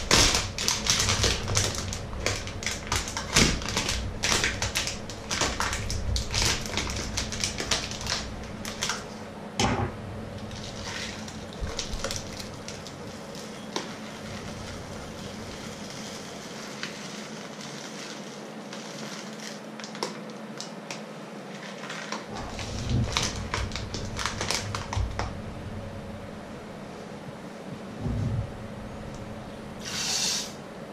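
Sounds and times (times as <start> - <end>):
plastic bag crinkling: 0.0 - 9.2, 10.4 - 20.7, 21.5 - 25.3.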